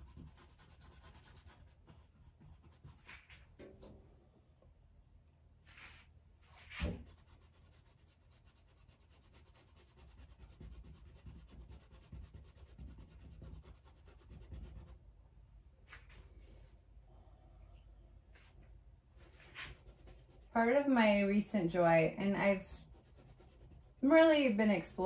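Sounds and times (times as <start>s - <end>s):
paintbrush strokes on canvas: 0.0s - 3.5s, 5.6s - 15.0s, 19.2s - 21.0s, 22.3s - 24.2s.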